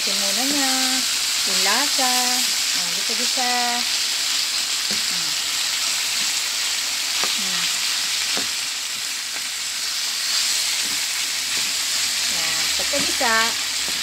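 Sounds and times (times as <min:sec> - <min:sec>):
chicken sizzling in a wok: 0:00.0 - 0:14.0
spatula stirring in a wok: 0:04.2 - 0:14.0.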